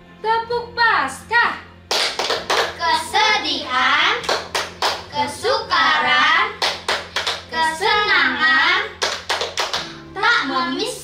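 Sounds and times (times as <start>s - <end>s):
hands clapping: 1.9s - 2.8s, 4.2s - 5.1s, 6.6s - 7.6s, 9.0s - 10.0s.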